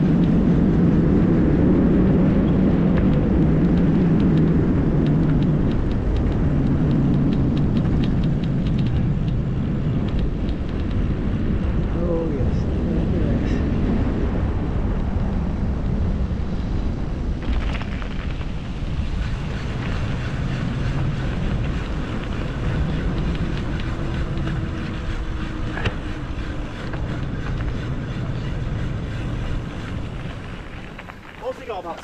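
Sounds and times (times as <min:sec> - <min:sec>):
wind rushing on microphone: 0:00.0 - 0:32.0.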